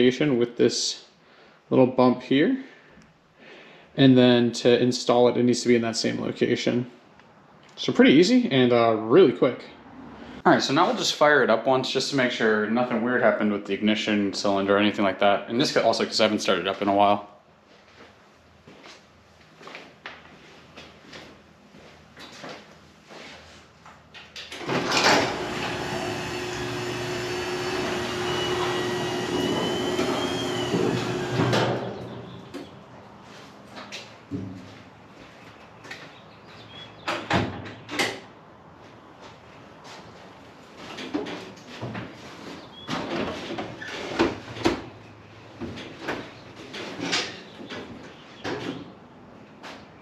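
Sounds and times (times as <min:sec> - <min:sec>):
garage door opener motor: 0:24.5 - 0:32.7.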